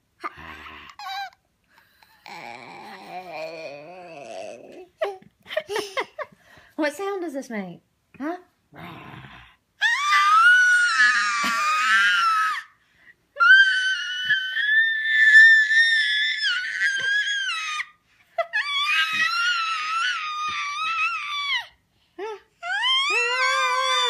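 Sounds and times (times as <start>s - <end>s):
toddler screaming playfully: 9.8s - 12.7s, 13.4s - 21.8s, 22.6s - 24.0s.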